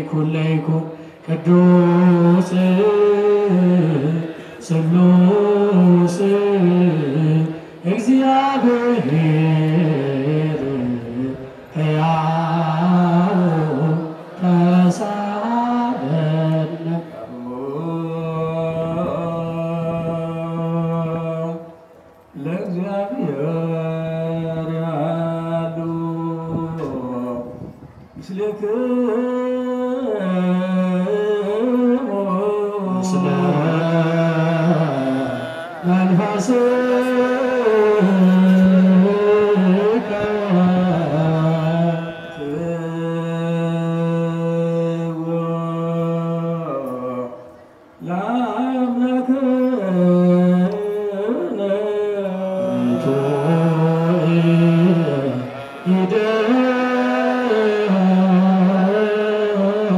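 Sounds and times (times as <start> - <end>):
men chanting a hymn: 0.0 - 21.8, 22.4 - 59.9.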